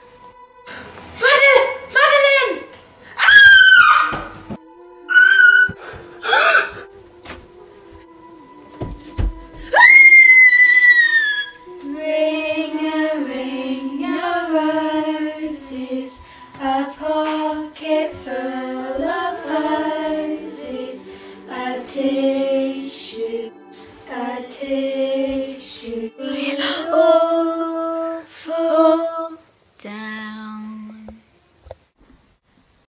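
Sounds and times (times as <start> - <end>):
girl screaming: 3.2 - 4.3, 5.1 - 6.7, 9.7 - 11.6
girls singing a lullaby: 4.2 - 31.3.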